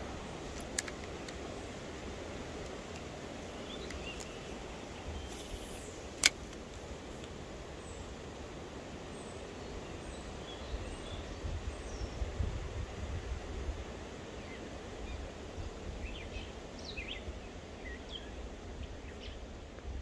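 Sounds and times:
outdoor background noise: 0:00.0 - 0:20.0
faint high chirps: 0:03.6 - 0:06.1
sharp click: 0:05.3 - 0:07.4.

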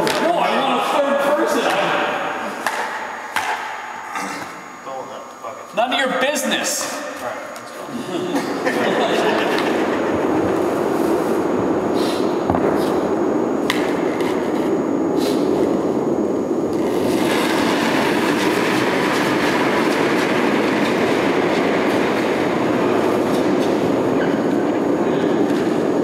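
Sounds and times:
low rumble: 0:08.8 - 0:26.0.

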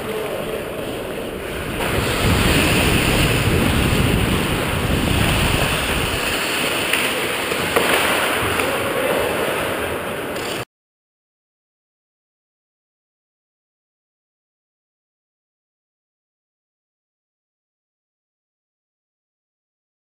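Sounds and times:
skates scraping on ice: 0:00.0 - 0:10.6
wind rushing over microphone: 0:01.0 - 0:10.4.

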